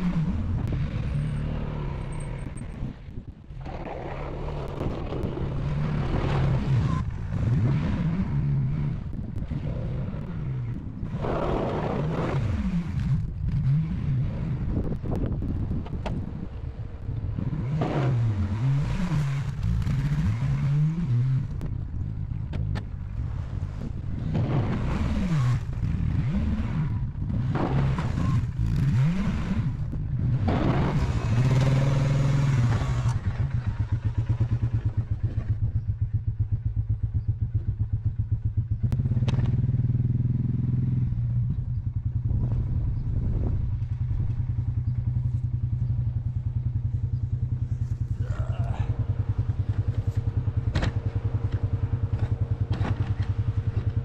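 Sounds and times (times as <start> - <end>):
atv engine revving and idling: 0.0 - 54.0.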